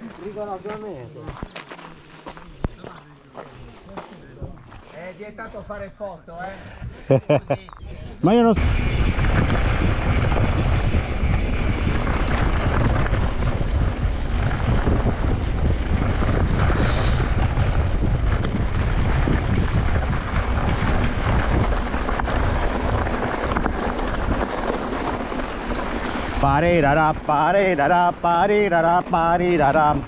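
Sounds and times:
wind buffeting microphone: 6.6s - 30.0s.

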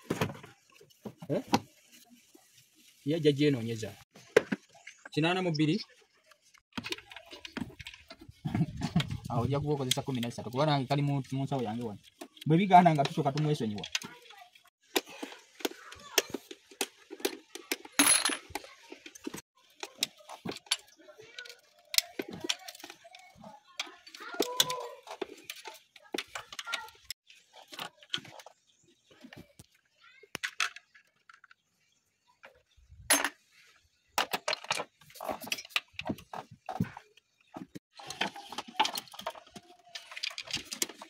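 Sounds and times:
metal tools clinking on metal: 17.5s - 18.6s, 33.1s - 33.4s.

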